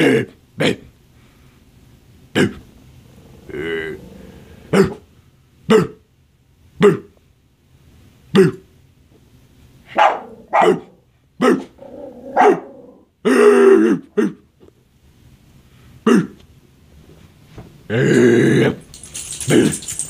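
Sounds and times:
small dog barking: 9.9s - 13.0s
loud drawn-out dog sound: 9.9s - 13.1s.

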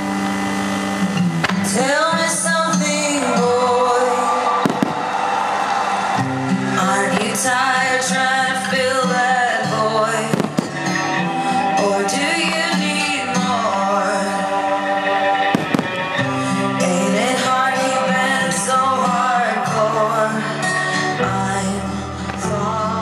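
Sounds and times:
music with singing: 0.0s - 23.0s
firework bangs: 4.5s - 8.3s, 10.3s - 11.2s, 15.5s - 16.2s.

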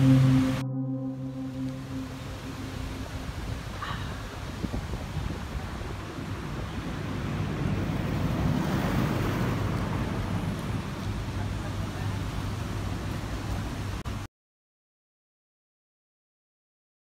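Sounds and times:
road traffic rumble: 0.0s - 14.1s
vehicle passing: 7.0s - 10.5s.

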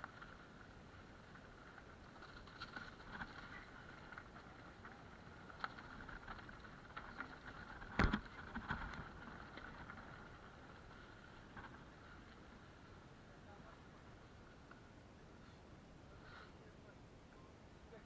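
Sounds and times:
bike rattling on rocky trail: 0.0s - 14.1s.

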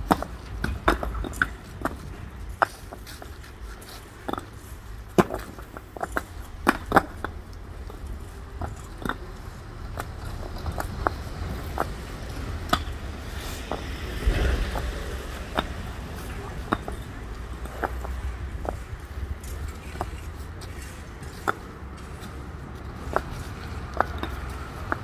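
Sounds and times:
paving blocks clacking: 0.0s - 25.0s.

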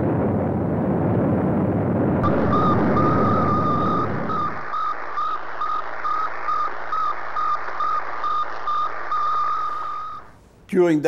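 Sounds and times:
high radio beeps: 2.2s - 10.4s
radio static hiss: 2.2s - 10.4s.

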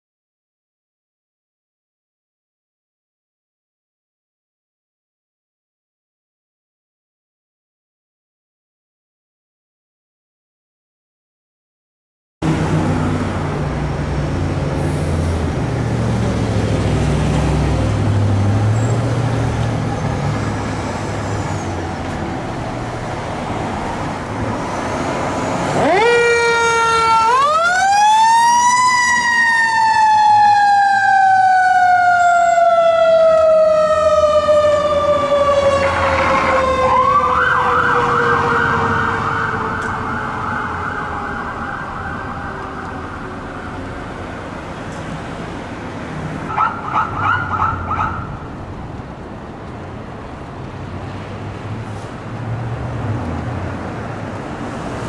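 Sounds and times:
electronic siren yelp: 25.8s - 43.9s, 46.5s - 48.5s.

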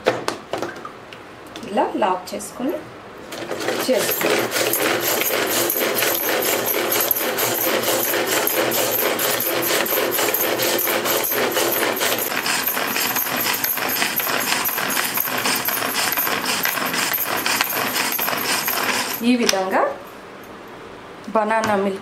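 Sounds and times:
pull-cord chopper clicking: 3.7s - 19.6s.

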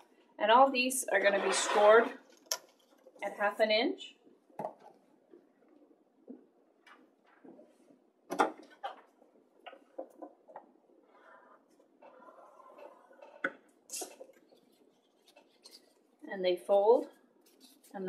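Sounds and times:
paper rustle: 17.4s - 18.0s.

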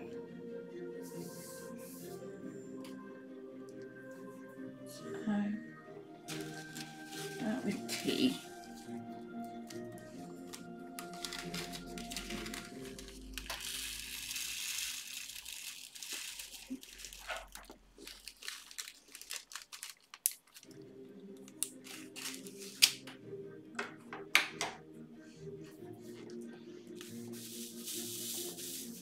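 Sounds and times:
quiet background music: 0.0s - 29.0s
plastic crinkling: 6.3s - 8.8s, 10.4s - 20.8s, 21.6s - 22.9s.

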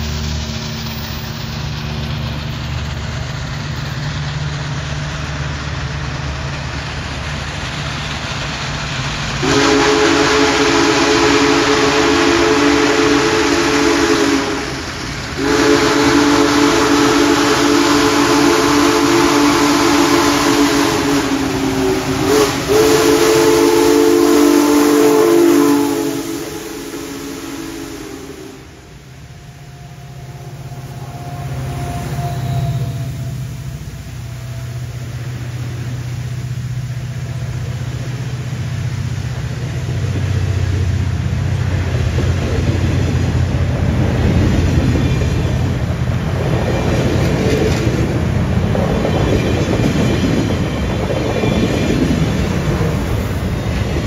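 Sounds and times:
low rumble of locomotive: 0.0s - 54.0s
steam locomotive whistle blasts: 9.4s - 14.8s, 15.4s - 35.6s.

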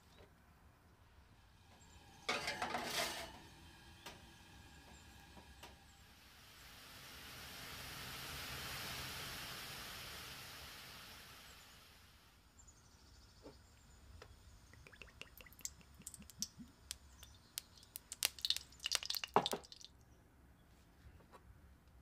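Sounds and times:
soft hiss: 0.0s - 21.0s
oil dripping into a wok: 14.7s - 20.0s.

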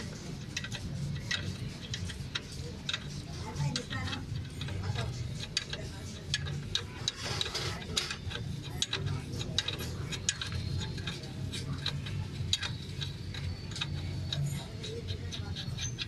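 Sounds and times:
steady low hum: 0.0s - 16.0s
ratchet wrench clicking: 5.3s - 16.0s.

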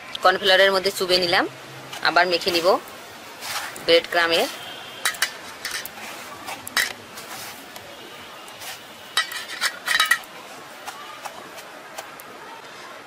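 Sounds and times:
metallic clinks in steel bowls: 5.0s - 5.9s, 9.2s - 10.3s.

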